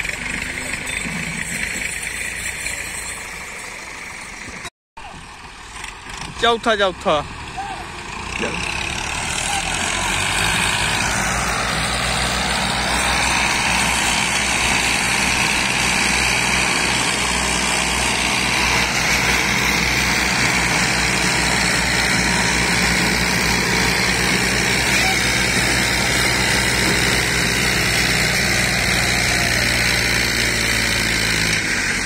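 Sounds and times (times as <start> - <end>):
tractor diesel engine under load: 0.0 - 32.0.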